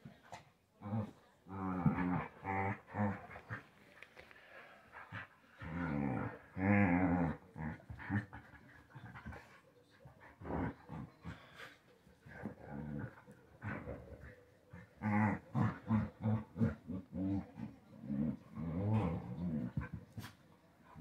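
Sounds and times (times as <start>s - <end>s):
dogs growling: 0.8s - 3.8s, 4.9s - 21.0s.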